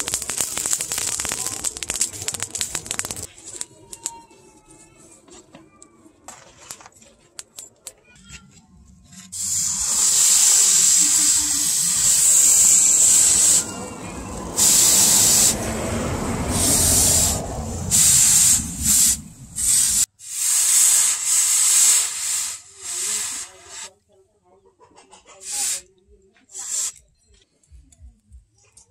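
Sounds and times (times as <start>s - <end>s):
hot blade hissing in water: 9.4s - 14.0s, 14.6s - 15.7s, 16.5s - 23.9s, 25.4s - 25.8s, 26.5s - 27.0s.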